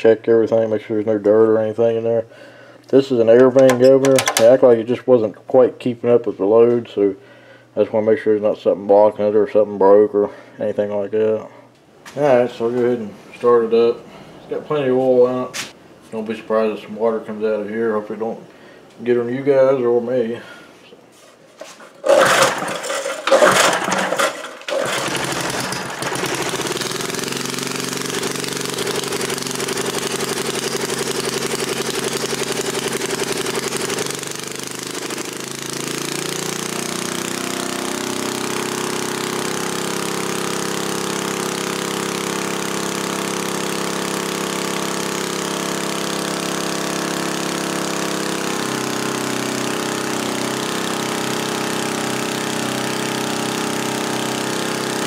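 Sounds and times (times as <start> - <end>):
starter cord pulls: 3.4 - 4.6, 22.0 - 27.0
small engine running: 22.0 - 55.0.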